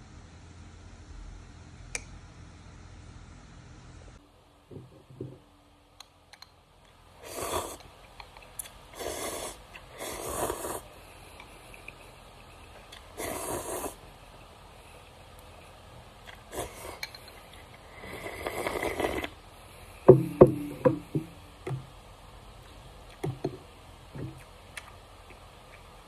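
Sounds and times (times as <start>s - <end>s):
person slurping noodles: 7.2s - 7.9s, 9.0s - 10.9s, 11.6s - 14.0s, 16.2s - 19.4s.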